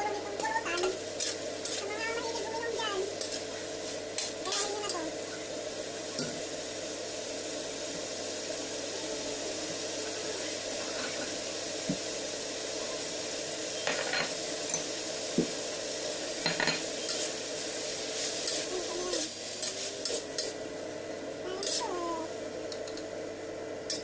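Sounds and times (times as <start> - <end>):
food sizzling in a wok: 0.0 - 24.0
spatula scraping a wok: 0.4 - 5.0, 17.0 - 17.5, 18.1 - 20.6, 21.6 - 22.1.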